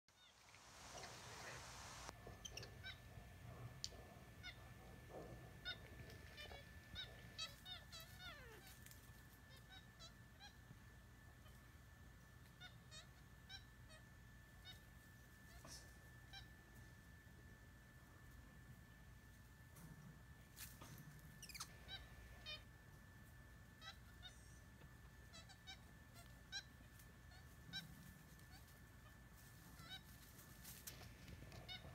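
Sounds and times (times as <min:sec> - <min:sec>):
short high chirping calls: 0:21.4 - 0:22.1.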